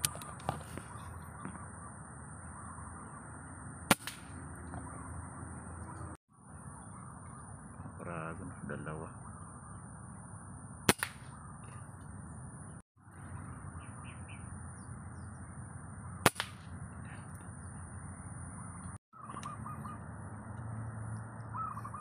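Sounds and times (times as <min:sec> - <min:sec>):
air rifle shots: 0:03.9 - 0:04.4, 0:10.9 - 0:11.4, 0:16.2 - 0:16.8
faint bird chirps: 0:13.2 - 0:15.7, 0:16.9 - 0:22.0.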